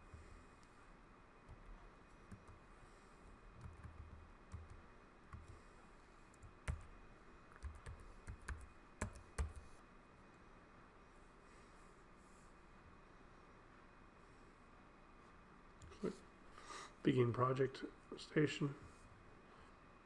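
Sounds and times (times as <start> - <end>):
keyboard keys typing: 1.5 - 2.6, 3.6 - 5.6, 6.3 - 6.9, 7.5 - 9.7.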